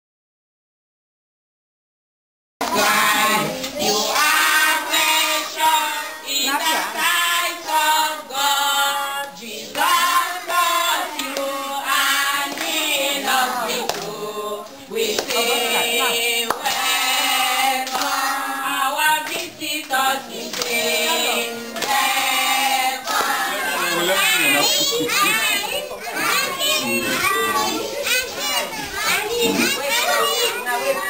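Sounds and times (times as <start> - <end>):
children singing: 2.6 - 31.0
hand clapping: 13.8 - 16.9, 17.8 - 18.3, 19.2 - 20.8, 21.8 - 22.0, 23.0 - 23.5.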